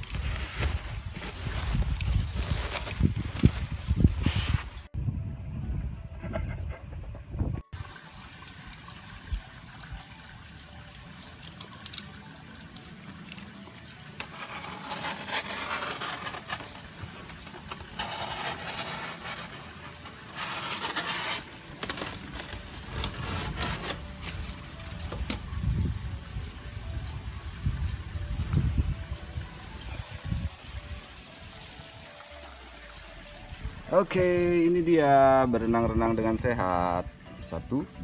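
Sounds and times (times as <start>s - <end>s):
packing tape tearing: 14.2s - 25.0s.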